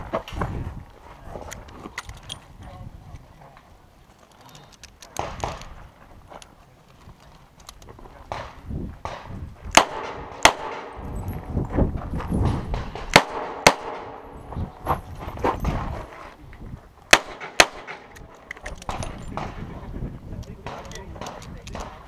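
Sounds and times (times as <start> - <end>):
pistol shots: 8.3 - 11.0, 12.4 - 14.3, 17.1 - 19.6.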